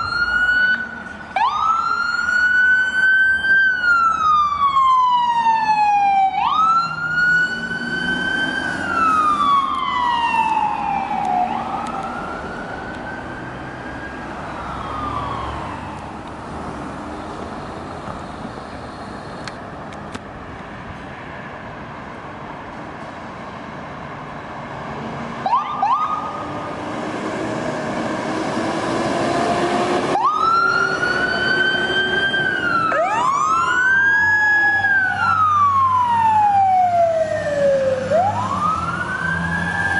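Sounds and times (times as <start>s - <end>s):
ambulance siren wailing: 0.0s - 16.5s, 25.4s - 26.8s, 27.8s - 39.9s
fire engine siren wailing: 0.0s - 18.8s, 25.3s - 39.9s
diesel engine: 0.0s - 39.9s.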